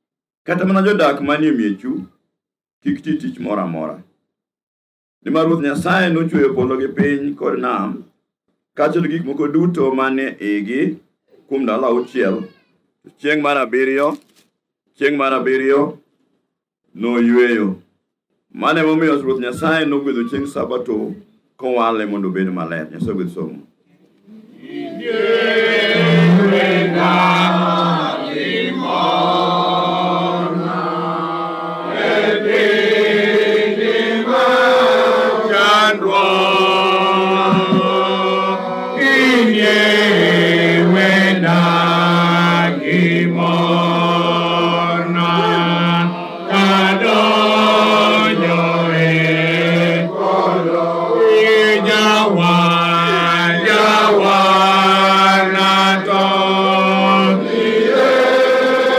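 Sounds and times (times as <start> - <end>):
congregation singing a hymn: 24.5 - 58.9.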